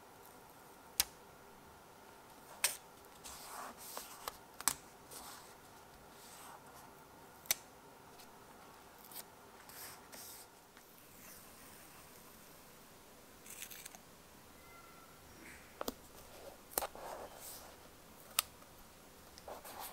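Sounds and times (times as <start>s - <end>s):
soft paper rustling: 2.4s - 7.0s, 19.3s - 19.9s.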